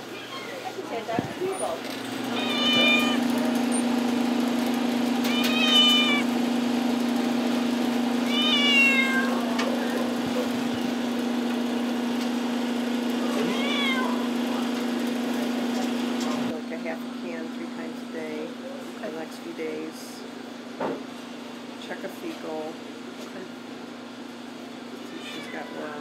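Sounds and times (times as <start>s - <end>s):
animal crying high: 0.0s - 0.7s, 2.3s - 3.3s, 5.2s - 6.3s, 8.2s - 9.5s, 13.2s - 14.3s, 25.1s - 26.0s.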